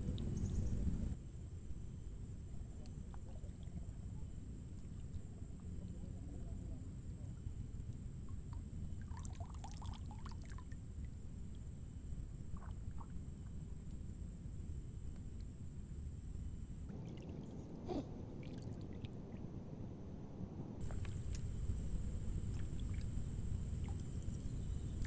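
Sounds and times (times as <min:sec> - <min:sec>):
steady low rumble: 0:00.0 - 0:09.0, 0:10.9 - 0:25.0
faint high whine: 0:00.0 - 0:25.0
soft rustle or splash: 0:20.8 - 0:25.0.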